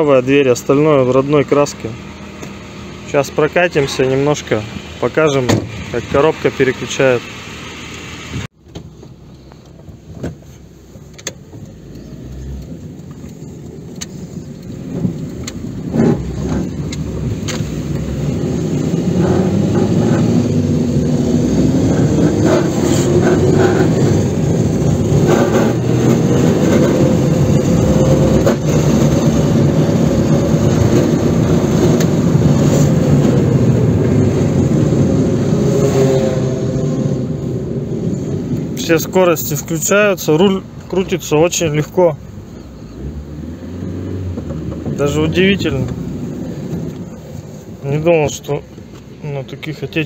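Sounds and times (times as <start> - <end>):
car engine and road noise: 0.0 - 50.0.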